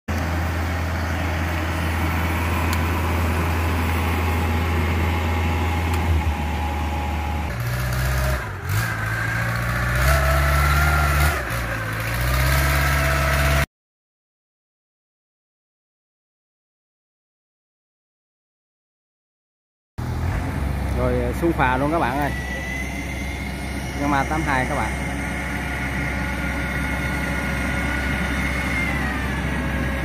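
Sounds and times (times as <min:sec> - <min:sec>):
combine harvester engine running: 0:00.1 - 0:13.6, 0:20.0 - 0:30.0
boat engine running: 0:20.1 - 0:30.0.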